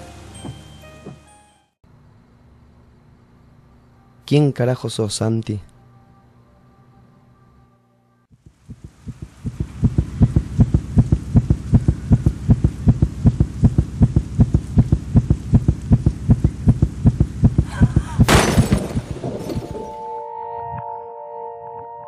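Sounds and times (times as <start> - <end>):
pulsing low thumps: 8.4 - 19.7
loud crash with ringing tail: 18.3 - 20.1.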